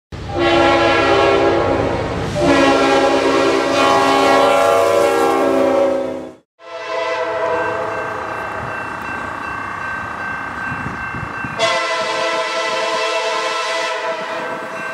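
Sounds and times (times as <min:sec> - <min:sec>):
locomotive air horn blasts: 0:00.2 - 0:08.0, 0:11.6 - 0:14.6.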